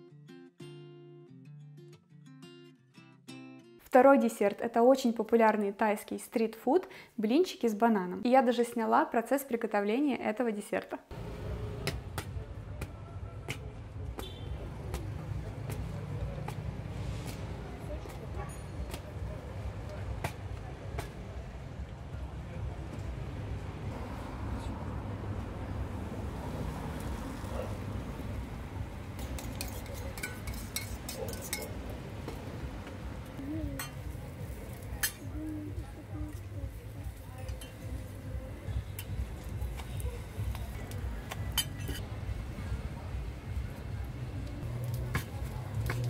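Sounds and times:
street traffic rumble: 11.1s - 46.0s
metal utensils clinking: 29.2s - 31.9s, 34.7s - 35.3s, 41.5s - 42.0s.

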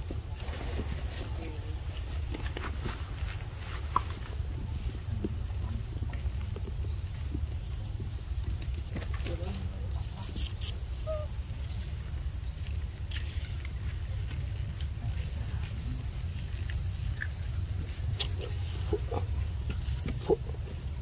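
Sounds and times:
insect chorus buzzing: 0.0s - 21.0s
faint short chirps: 10.4s - 11.3s.

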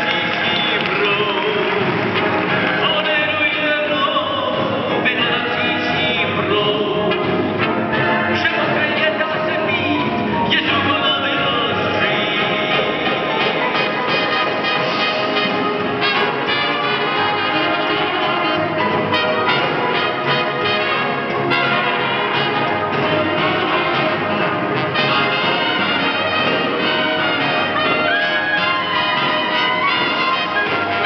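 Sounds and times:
brass section: 0.0s - 31.0s
swing band playing: 0.0s - 31.0s.

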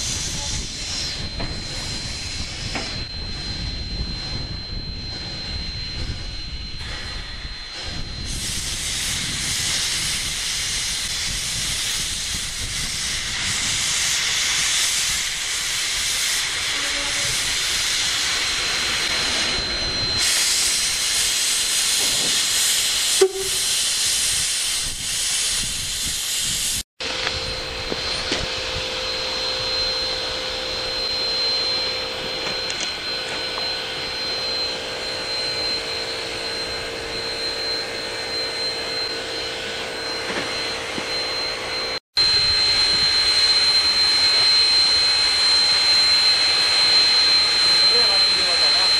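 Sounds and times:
steam locomotive hissing: 0.0s - 4.6s, 6.8s - 48.9s
high thin tone: 16.6s - 17.6s, 23.1s - 24.0s, 27.0s - 48.9s.

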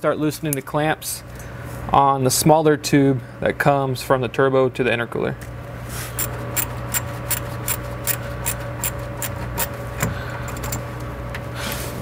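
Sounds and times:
steady low hum: 0.0s - 12.0s
socket wrench clicking: 6.2s - 9.8s, 10.5s - 10.8s.

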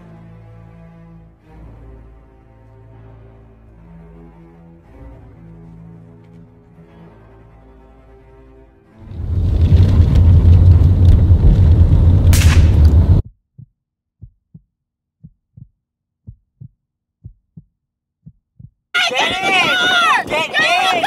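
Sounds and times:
low rumbling roar: 9.0s - 13.2s
rushing whoosh: 9.0s - 13.2s
heartbeat thumps: 10.0s - 19.8s.

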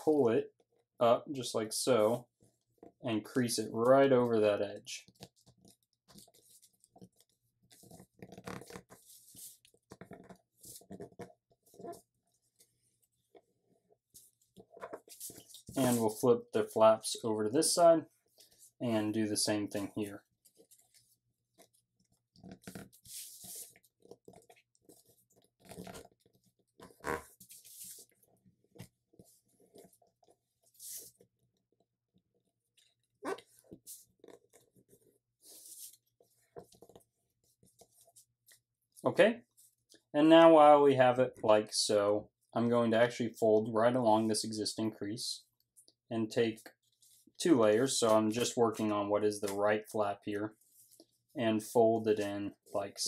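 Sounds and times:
fingers scratching along paper fold: 5.1s - 15.8s, 20.4s - 28.2s.

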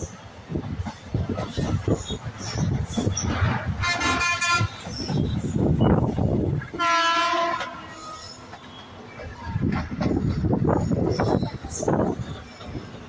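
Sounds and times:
moving train rumble: 0.0s - 13.0s
train horn blasts: 3.8s - 4.8s, 6.7s - 8.4s.

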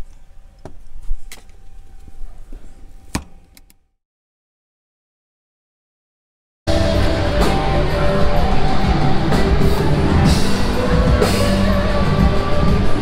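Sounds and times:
rock music with drums and guitar: 6.7s - 13.0s.

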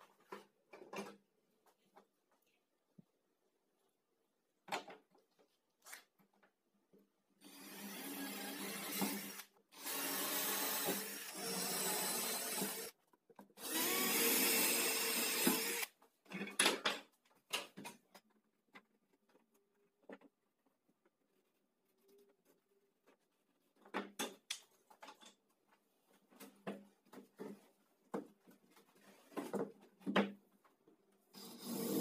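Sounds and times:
cordless drill running: 7.4s - 12.9s, 13.6s - 15.9s.

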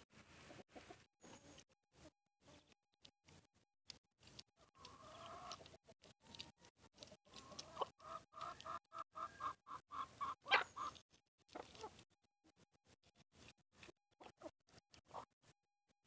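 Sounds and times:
hens clucking: 0.4s - 2.8s, 4.4s - 12.1s.

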